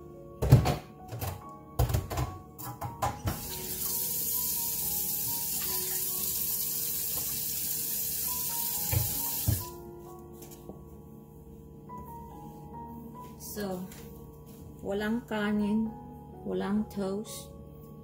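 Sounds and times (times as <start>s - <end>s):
water running from a tap: 3.3s - 9.8s.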